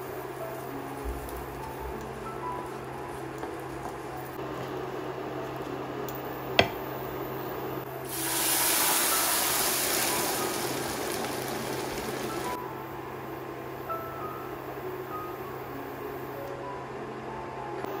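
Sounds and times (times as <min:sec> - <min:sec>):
wooden spoon stirring in pan: 0:00.0 - 0:05.9
grain toasting in oil: 0:00.0 - 0:12.6
water hissing in hot pan: 0:08.0 - 0:12.6.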